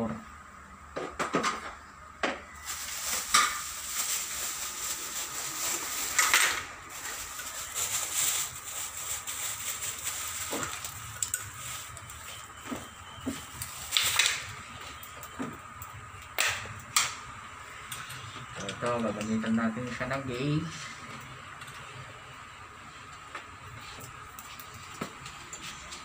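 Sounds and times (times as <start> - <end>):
steady high hiss: 2.6 - 14.7.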